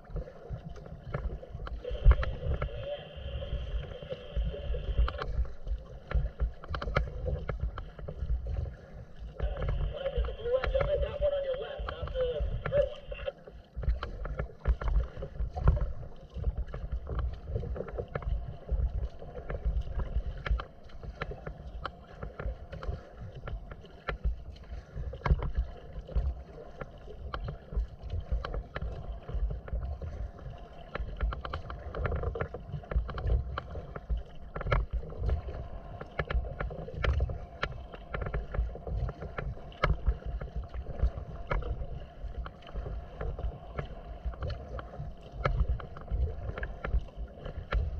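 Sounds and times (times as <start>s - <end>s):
water splashing against hull: 0.0s - 47.9s.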